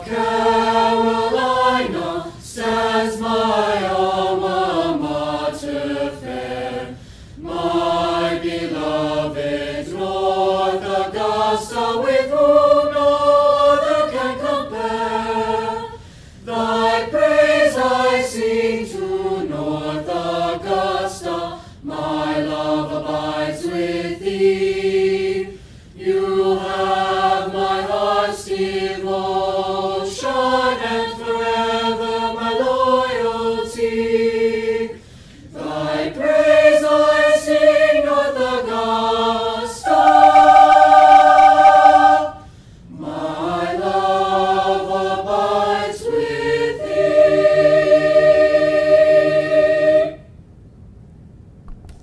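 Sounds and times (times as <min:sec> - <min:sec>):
choir singing held chords: 0:00.0 - 0:50.3
singers breathing: 0:06.9 - 0:07.4, 0:16.0 - 0:16.5, 0:21.5 - 0:21.9, 0:25.5 - 0:26.0, 0:35.0 - 0:35.6, 0:42.3 - 0:42.9.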